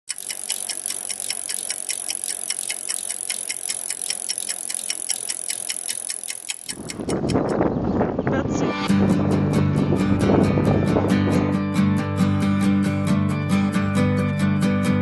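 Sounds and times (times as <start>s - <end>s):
bicycle freewheel clicking: 0.0s - 7.6s.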